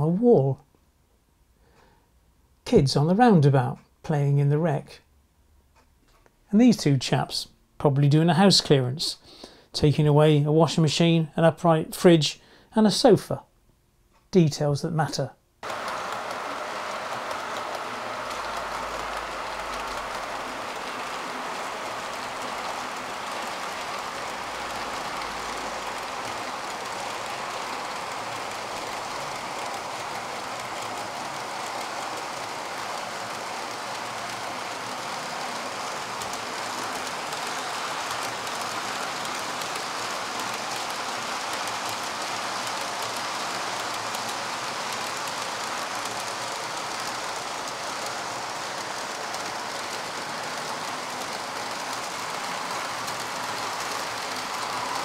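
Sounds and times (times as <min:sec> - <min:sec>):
model train wheels rolling on rails: 0:15.6 - 0:55.0.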